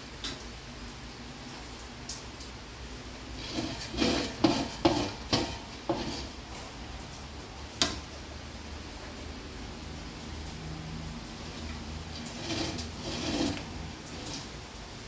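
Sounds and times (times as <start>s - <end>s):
plate knocking on metal pots: 3.6s - 6.2s.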